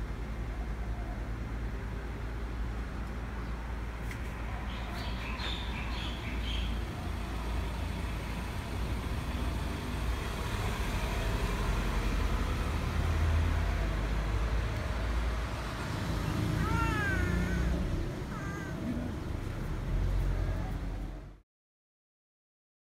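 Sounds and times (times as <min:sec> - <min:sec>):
distant traffic rumble: 0:00.0 - 0:21.4
cat meowing: 0:16.5 - 0:19.2.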